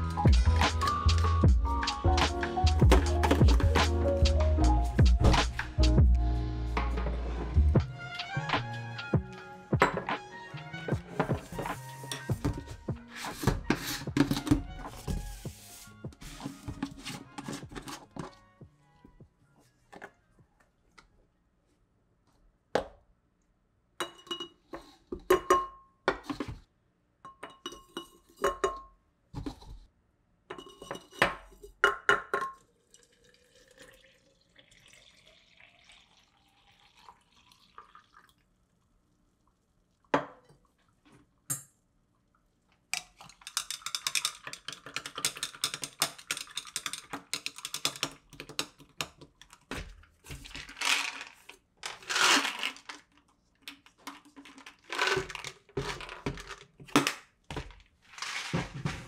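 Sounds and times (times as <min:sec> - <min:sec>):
water pouring into carafe: 0:32.5 - 0:38.6
stirrer clattering against glass: 0:43.0 - 0:48.9.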